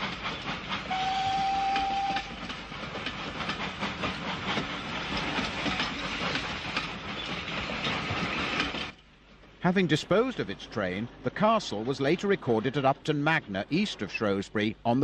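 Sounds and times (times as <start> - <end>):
steam locomotive exhaust beats: 0.0 - 14.8
rail noise: 0.0 - 15.0
steam whistle blast: 0.9 - 2.3.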